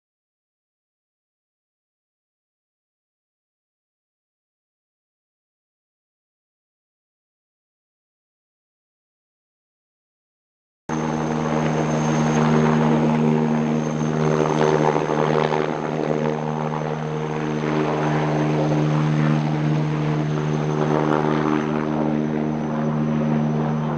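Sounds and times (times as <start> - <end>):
helicopter drone: 10.9 - 23.9.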